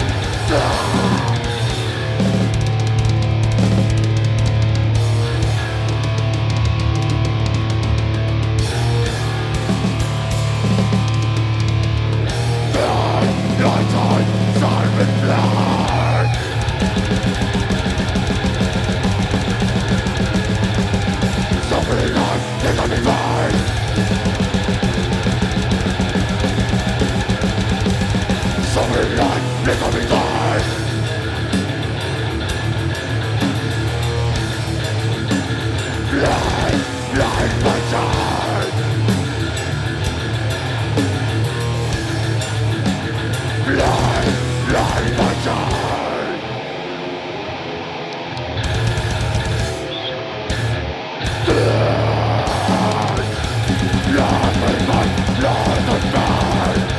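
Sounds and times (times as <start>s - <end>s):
harsh vocals: 0.0s - 3.2s, 12.3s - 32.3s, 33.6s - 47.3s, 51.2s - 56.9s
fast drumming: 0.0s - 8.3s, 8.9s - 46.5s, 51.3s - 56.9s
death metal band playing: 0.0s - 56.9s.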